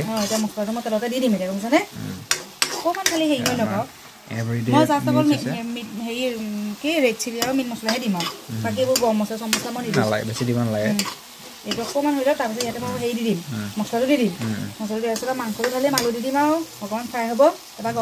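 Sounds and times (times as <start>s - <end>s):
metal spatula scraping a wok: 0.0s - 0.6s, 2.2s - 3.6s, 7.4s - 13.2s
vegetables sizzling in a wok: 0.0s - 18.0s.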